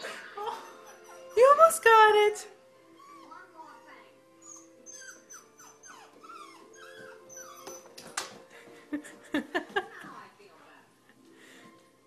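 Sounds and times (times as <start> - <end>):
dog whining: 0.4 - 1.7, 2.9 - 3.5, 4.4 - 8.2.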